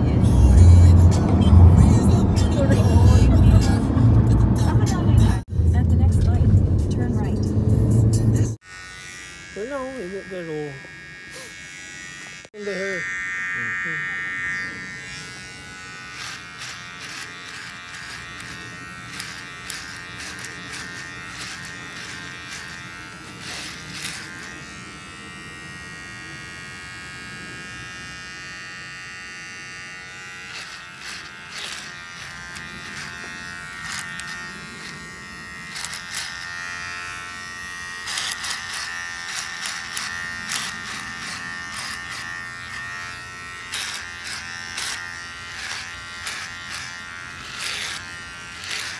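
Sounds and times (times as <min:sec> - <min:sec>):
electric hair clipper buzzing: 0:00.0 - 0:05.4, 0:08.1 - 0:48.9.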